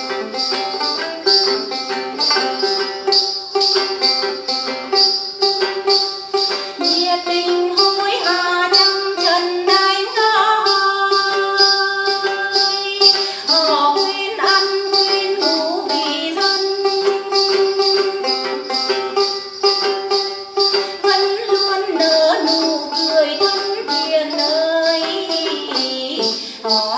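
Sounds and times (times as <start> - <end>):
long-necked lute: 0.0 - 26.9
steady jingling beat: 0.0 - 26.9
woman singing folk melody: 5.8 - 26.9.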